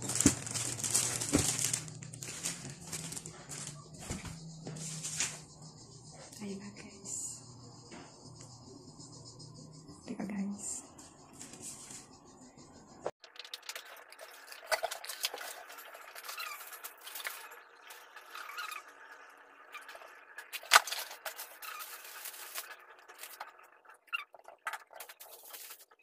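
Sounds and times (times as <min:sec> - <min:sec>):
plastic packaging crinkling: 0:00.0 - 0:05.3, 0:13.3 - 0:17.6, 0:20.5 - 0:23.6, 0:24.6 - 0:26.0.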